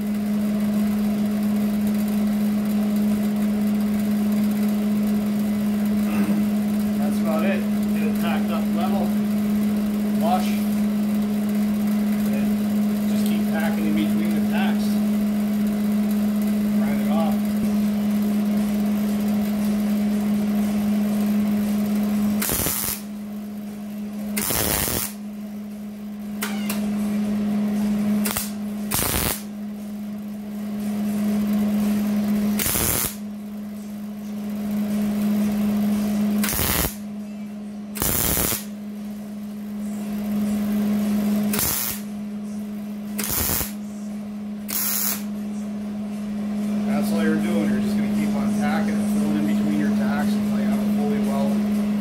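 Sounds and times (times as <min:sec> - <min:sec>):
steady low hum: 0:00.0 - 0:52.0
welder crackling: 0:22.4 - 0:23.0, 0:24.4 - 0:25.2, 0:28.2 - 0:29.4, 0:32.6 - 0:33.2, 0:36.4 - 0:37.0, 0:38.0 - 0:38.7, 0:41.6 - 0:42.0, 0:43.2 - 0:43.7.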